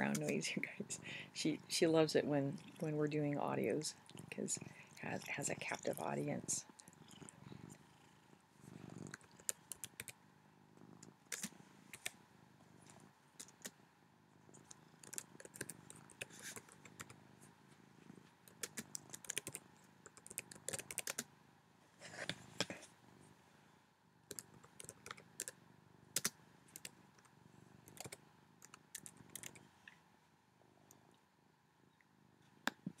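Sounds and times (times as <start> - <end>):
cat purring: 0.0 - 21.4, 22.0 - 30.0.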